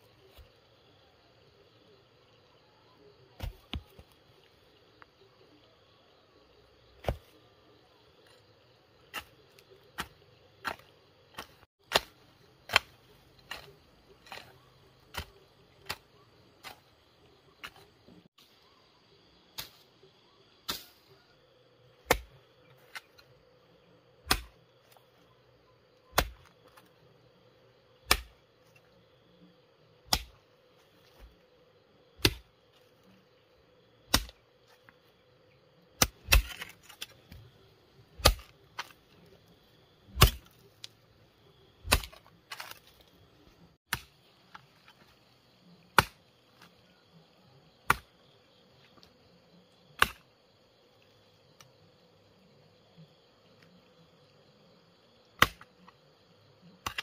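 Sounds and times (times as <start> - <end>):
digging tool striking hard ground: 3.4 - 4.1, 7.0 - 7.4, 9.0 - 17.0, 22.0 - 23.2, 24.2 - 25.0, 26.1 - 26.9, 28.0 - 28.5, 30.0 - 30.4, 32.2 - 32.5, 34.1 - 34.5, 36.0 - 37.5, 38.1 - 39.2, 40.1 - 40.9, 41.8 - 43.1, 43.9 - 45.0, 45.9 - 46.3, 47.9 - 48.1, 50.0 - 50.3, 55.4 - 55.7.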